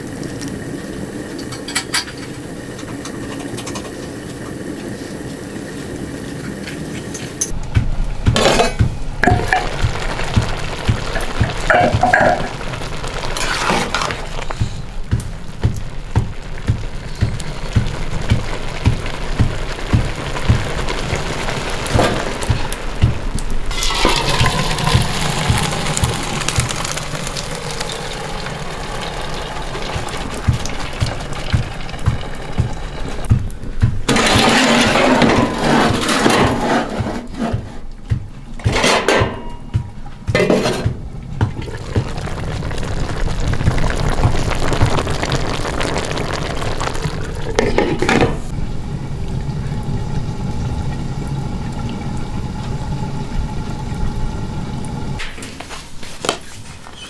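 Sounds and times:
food frying in a wok: 0:00.0 - 0:07.5, 0:08.3 - 0:33.4, 0:41.3 - 0:57.0
water splashing and draining: 0:00.0 - 0:39.2, 0:39.8 - 0:55.2
clatter of metal pots: 0:01.4 - 0:04.0, 0:08.4 - 0:09.8, 0:11.0 - 0:12.6, 0:13.3 - 0:14.8, 0:23.7 - 0:25.4, 0:34.1 - 0:37.9, 0:38.6 - 0:39.7, 0:40.3 - 0:41.8, 0:47.4 - 0:48.5.

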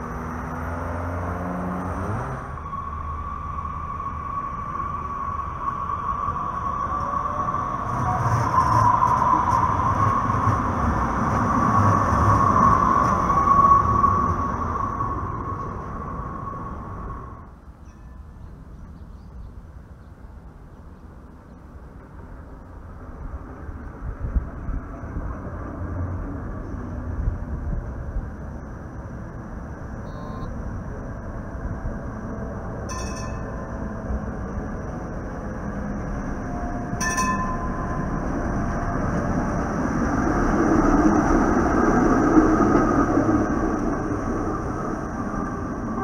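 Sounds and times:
light rail vehicle rumbling past: 0:00.0 - 0:46.0
steady high tone: 0:30.0 - 0:30.6, 0:32.4 - 0:34.4, 0:36.3 - 0:39.1
high-pitched tone: 0:30.1 - 0:30.6, 0:32.9 - 0:33.8.

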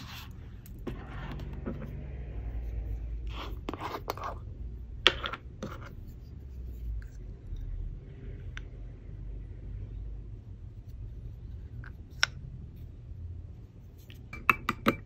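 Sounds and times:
containers scraping on wooden table: 0:00.0 - 0:02.0
steady low hum: 0:00.0 - 0:15.0.

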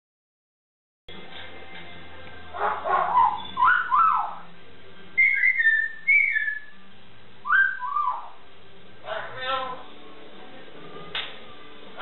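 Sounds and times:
myna whistling: 0:03.0 - 0:04.4, 0:05.2 - 0:06.8, 0:07.4 - 0:08.4.

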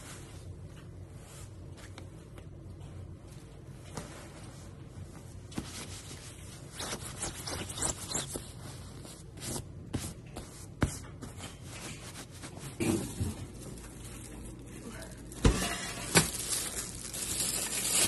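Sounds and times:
comforter fabric rustling: 0:03.2 - 0:12.8.

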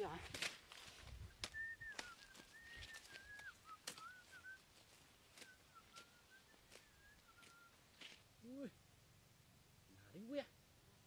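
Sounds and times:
faint whistled call: 0:01.2 - 0:07.8.

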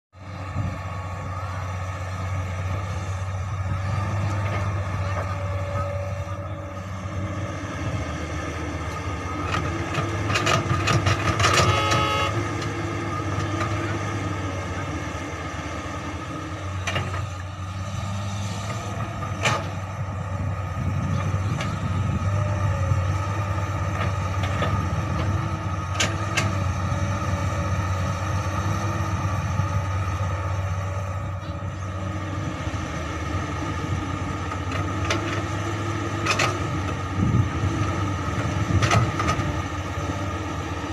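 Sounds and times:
excavator diesel engine: 0:00.2 - 0:40.9
horn-like tone: 0:11.4 - 0:12.5.

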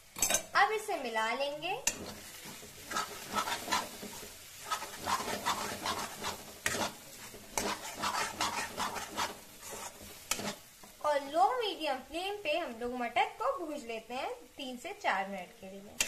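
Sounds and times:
light sizzle of frying: 0:00.0 - 0:16.0
spatula scraping a pan: 0:01.8 - 0:11.0.

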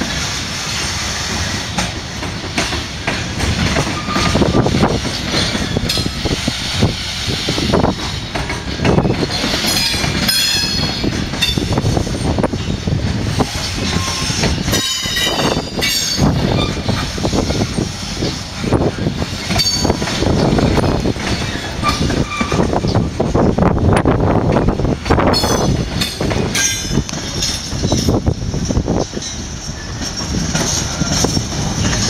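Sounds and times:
train wheels rumbling on rails: 0:00.0 - 0:32.0
wheels clicking over rail joints: 0:00.0 - 0:32.0
metallic wheel squeals: 0:03.9 - 0:04.7, 0:13.8 - 0:17.9, 0:19.6 - 0:20.0, 0:21.3 - 0:23.0.

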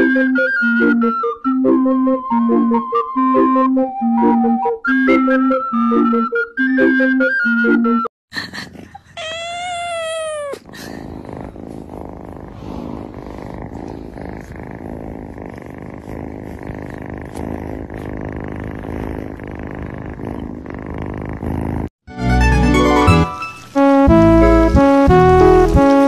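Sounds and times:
cat purring: 0:08.4 - 0:22.0
cat meowing: 0:09.0 - 0:10.7.

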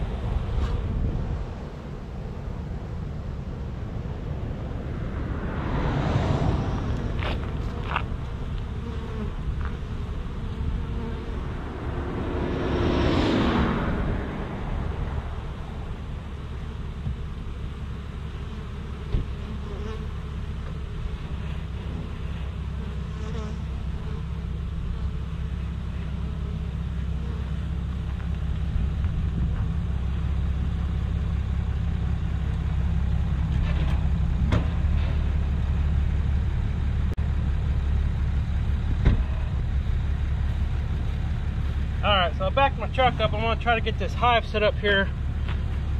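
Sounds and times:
truck engine running: 0:00.0 - 0:45.9
bees buzzing: 0:05.6 - 0:27.8.

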